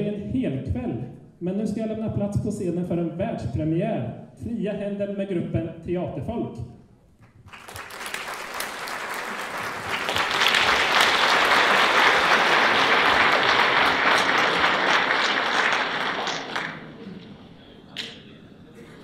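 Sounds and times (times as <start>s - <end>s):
audience applauding: 7.2s - 17.1s.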